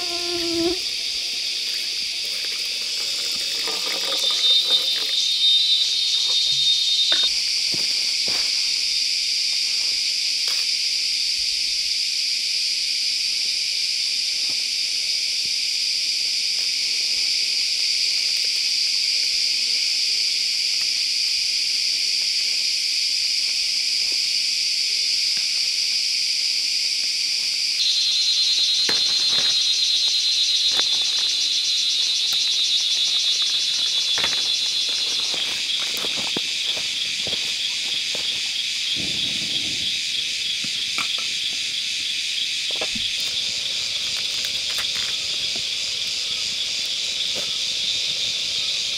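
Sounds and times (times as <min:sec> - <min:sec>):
insects chorus: 0:00.0 - 0:48.9
leaves rustling: 0:33.3 - 0:39.4.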